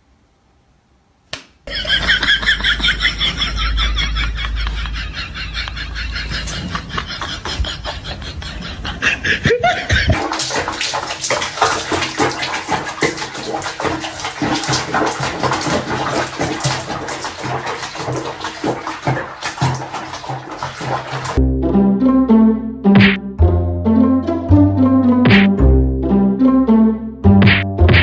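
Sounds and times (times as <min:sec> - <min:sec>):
water sloshing and splashing: 0:09.7 - 0:21.4.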